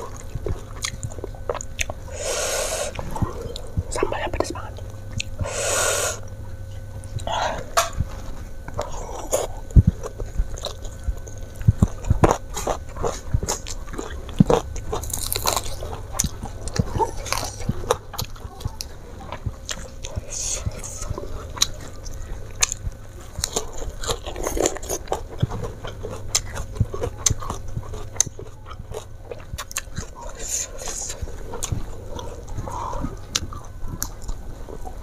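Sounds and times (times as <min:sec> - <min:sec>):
person chewing food: 0:00.0 - 0:35.0
crisp crunches: 0:11.7 - 0:18.3.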